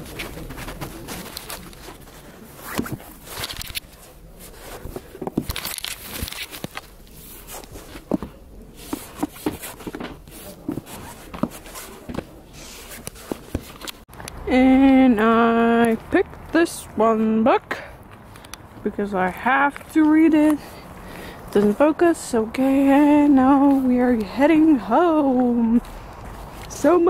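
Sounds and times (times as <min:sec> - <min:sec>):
books knocking and rustling: 0:00.0 - 0:14.3.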